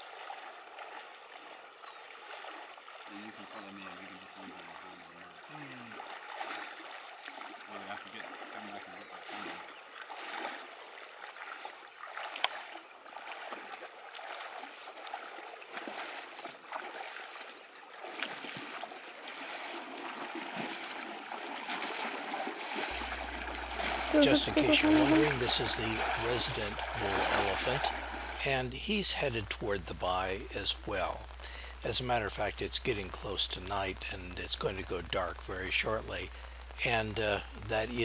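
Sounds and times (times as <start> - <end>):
wading and splashing through water: 0.0 - 28.5
high-pitched insect drone: 0.0 - 29.3.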